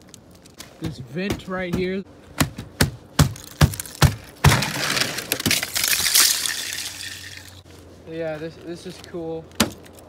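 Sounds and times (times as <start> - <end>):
ice crackling and crunching: 0.0 - 0.8, 3.3 - 7.7
ice cracking and snapping: 3.3 - 7.6.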